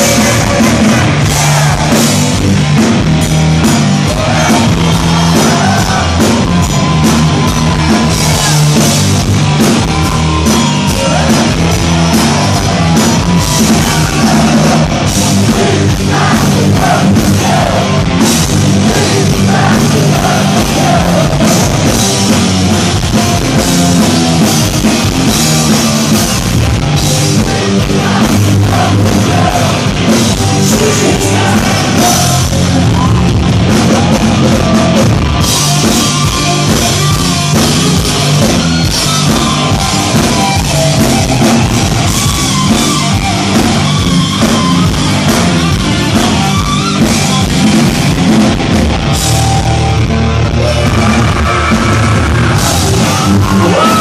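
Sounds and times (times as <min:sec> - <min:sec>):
man singing lead: 0:00.0 - 0:02.1, 0:04.0 - 0:06.5, 0:10.7 - 0:22.4, 0:27.4 - 0:33.3, 0:50.4 - 0:54.0
drums: 0:00.0 - 0:54.0
electric guitar: 0:00.0 - 0:54.0.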